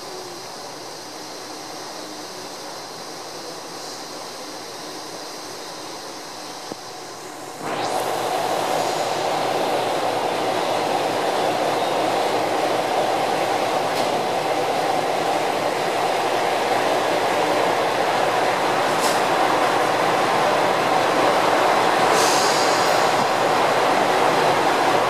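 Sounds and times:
diesel train engine: 0.0 - 25.0.

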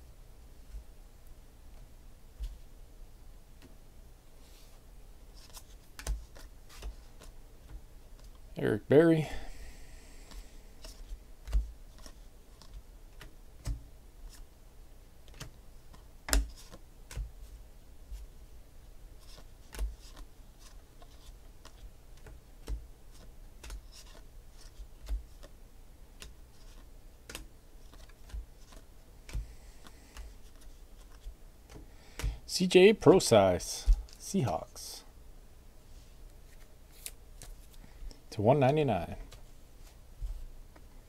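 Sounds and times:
cards flipped by hand: 5.3 - 7.4, 10.3 - 14.4, 19.2 - 25.6, 26.2 - 32.3, 36.5 - 37.8.

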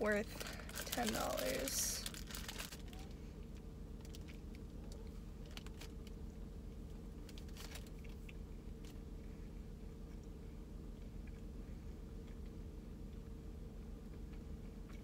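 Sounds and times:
steady low hum: 0.0 - 15.0
person chewing cookie: 7.2 - 15.0.

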